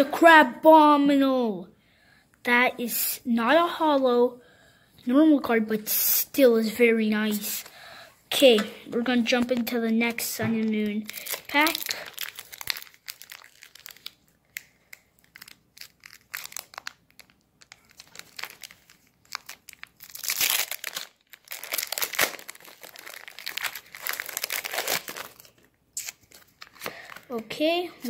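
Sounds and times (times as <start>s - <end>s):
foil wrapper crinkling and tearing: 9.3s - 27.4s.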